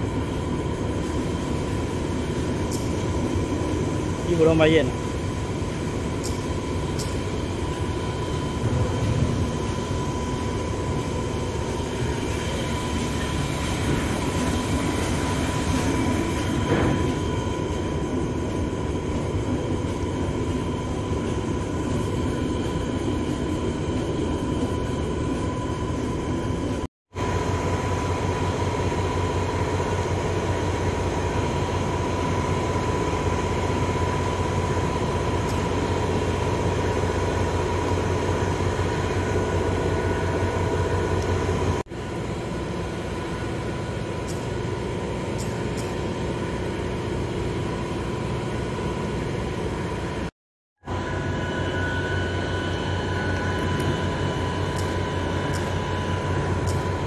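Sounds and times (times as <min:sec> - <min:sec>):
industrial machinery rumble: 0:00.0 - 0:57.0.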